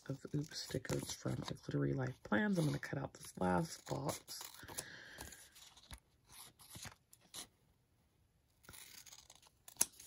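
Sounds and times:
scissors snipping paper: 8.6s - 10.0s.

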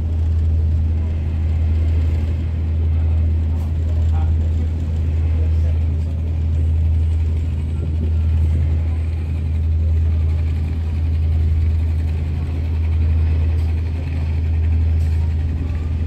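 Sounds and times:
ferry engines droning: 0.0s - 16.0s.

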